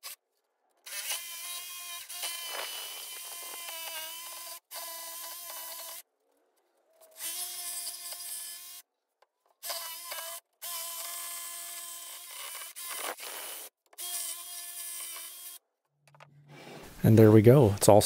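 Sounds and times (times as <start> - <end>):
jigsaw cutting wood: 0.9 - 6.0, 9.6 - 15.6.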